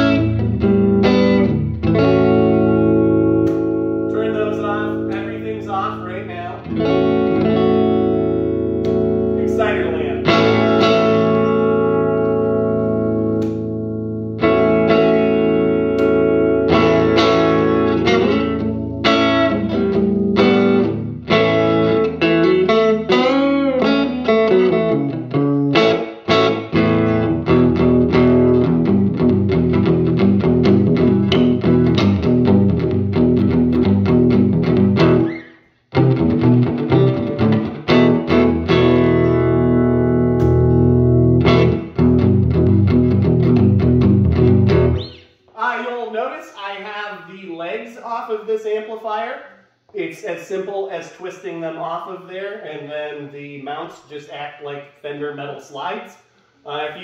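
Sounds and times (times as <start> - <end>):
overdriven electric guitar chords: 0.0 - 45.4.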